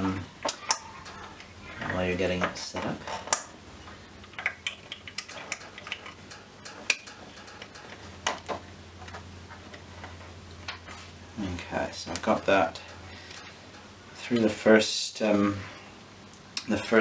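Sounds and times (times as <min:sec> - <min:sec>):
small steel parts clicking: 0:04.2 - 0:09.2.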